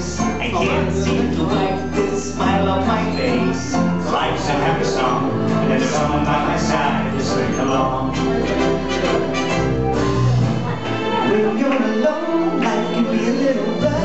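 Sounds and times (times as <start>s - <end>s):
loud music with bass line: 0.0s - 14.0s.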